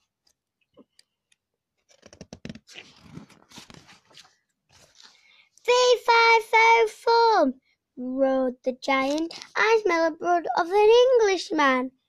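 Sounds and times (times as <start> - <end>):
paper page rustling: 1.9 - 5.3, 9.1 - 9.6.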